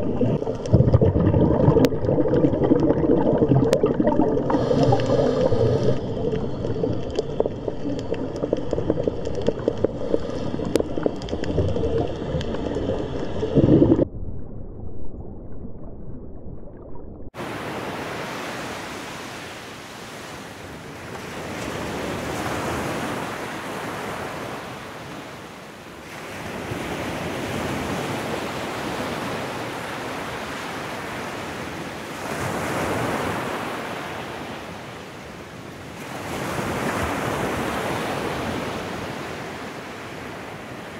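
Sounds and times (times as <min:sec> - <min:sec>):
muffled underwater sound: 0:00.0 - 0:17.3
waves breaking on beach: 0:04.0 - 0:13.6, 0:17.4 - 0:40.9.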